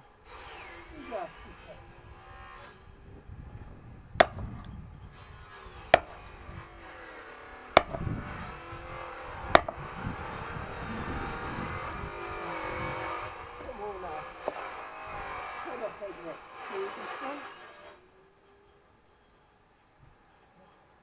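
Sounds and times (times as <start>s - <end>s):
axe splitting firewood: 4.1s - 10.7s, 11.4s - 18.0s.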